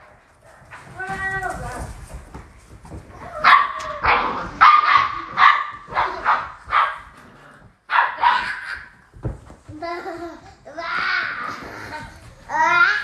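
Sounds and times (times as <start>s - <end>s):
puppies barking: 3.3s - 7.1s, 7.9s - 9.0s.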